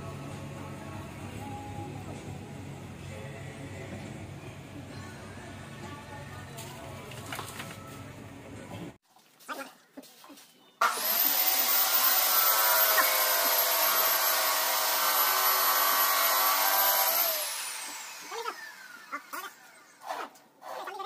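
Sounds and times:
electric motor whining and spinning down: 0:10.8 - 0:20.1.

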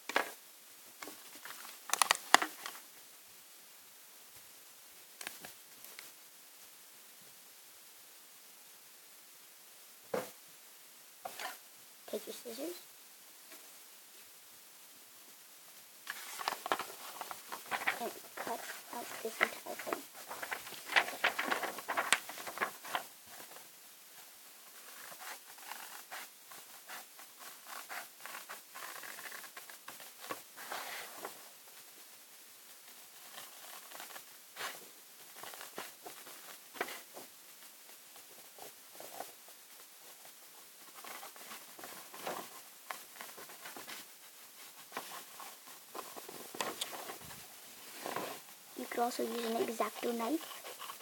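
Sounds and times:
paper rustling: 0:01.0 - 0:02.8, 0:16.1 - 0:31.4, 0:33.1 - 0:37.3, 0:40.1 - 0:51.0.

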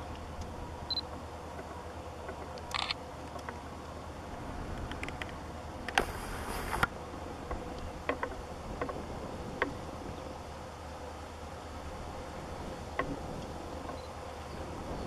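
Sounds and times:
distant diesel locomotives droning: 0:00.0 - 0:15.0
camera zoom motor whirring: 0:02.7 - 0:03.0, 0:05.9 - 0:06.9.

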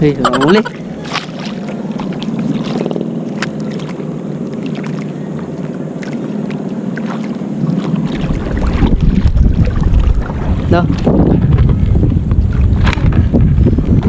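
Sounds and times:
water sloshing around paddleboard: 0:00.4 - 0:14.0
paddle splashes: 0:00.6 - 0:10.8
wind buffeting microphone: 0:07.6 - 0:14.0.

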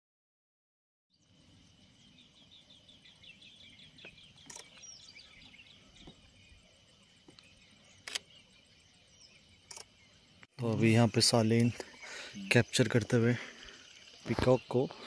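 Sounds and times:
bird chirping: 0:01.1 - 0:15.0
high insect drone: 0:01.2 - 0:15.0
camera shutter clicks: 0:04.4 - 0:04.8, 0:08.0 - 0:08.3.

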